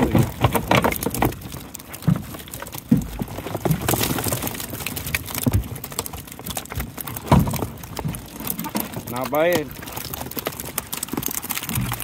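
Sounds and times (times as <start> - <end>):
knocks and rattles from net handling: 0.0 - 12.0.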